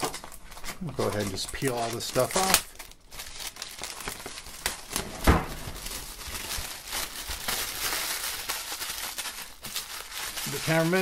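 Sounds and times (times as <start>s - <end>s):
plastic wrap crinkling: 0.0s - 11.0s
thump: 5.1s - 5.8s.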